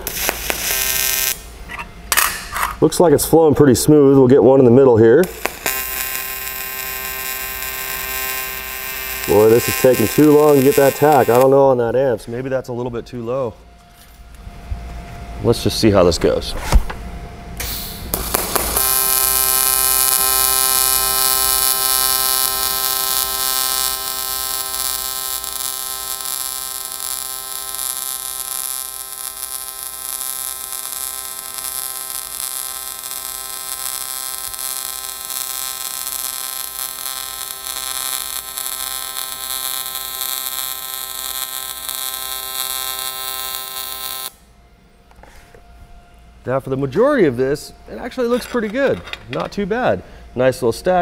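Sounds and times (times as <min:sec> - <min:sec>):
welding arc buzzing and hissing: 0:00.0 - 0:02.6, 0:04.9 - 0:11.9, 0:17.6 - 0:45.6.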